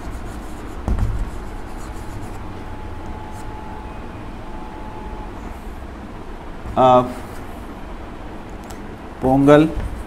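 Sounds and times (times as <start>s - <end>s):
chalk scratching on blackboard: 0.0s - 2.4s, 9.2s - 10.0s
low hum: 0.0s - 9.1s.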